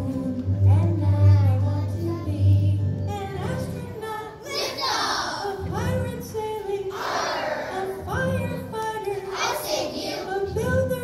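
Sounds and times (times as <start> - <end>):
children singing: 3.5 - 11.0.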